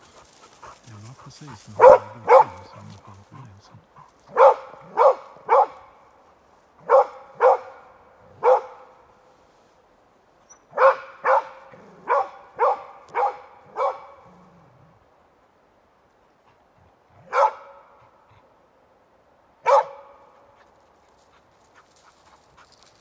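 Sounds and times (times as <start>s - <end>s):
dog barking: 1.5s - 3.5s, 4.2s - 6.0s, 6.8s - 9.0s, 10.7s - 14.5s, 17.2s - 18.1s, 19.6s - 20.4s.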